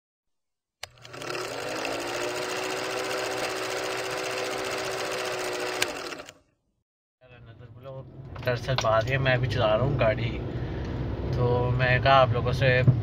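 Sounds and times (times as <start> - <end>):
film projector clatter: 0.8 - 6.4.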